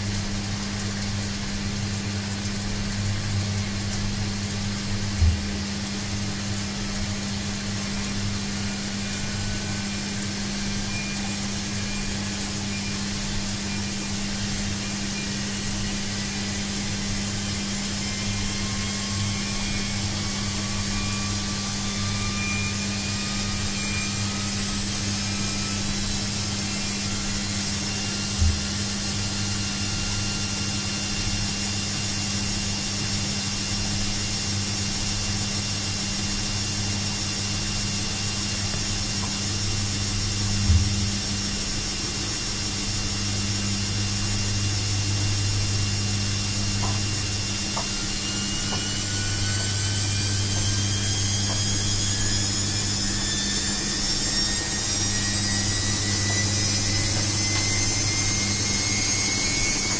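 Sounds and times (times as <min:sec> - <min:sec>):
washing machine motor hum: 0:00.0 - 0:59.9
rising whine: 0:05.2 - 0:30.2, 0:36.8 - 0:59.9.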